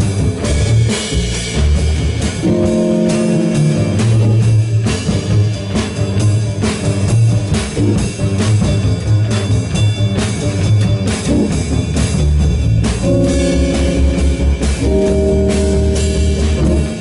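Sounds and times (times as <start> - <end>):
double bass line: 0.0 - 17.0
drum kit: 0.0 - 17.0
saxophones: 2.4 - 5.6, 13.0 - 17.0.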